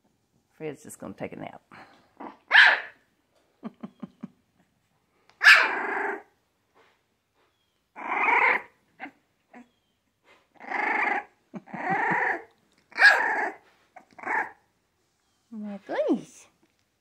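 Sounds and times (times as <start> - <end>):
puppy barks: 2.2 - 3.1, 5.4 - 6.3, 12.9 - 14.6
puppy yips: 2.5 - 3.0, 5.4 - 6.2, 8.0 - 10.0, 12.9 - 14.6
puppy grunts: 10.3 - 14.5.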